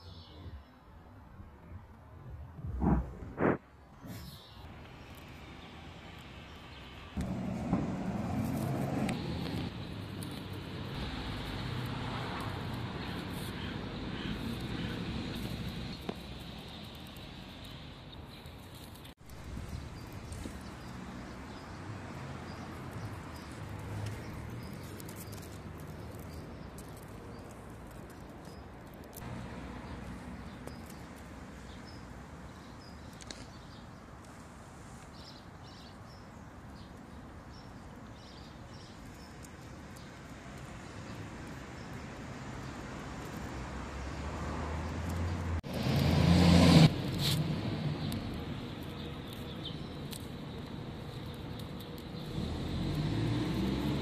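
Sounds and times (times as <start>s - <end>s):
vehicle engine hum approaching: 7.0s - 18.2s, 42.2s - 54.0s.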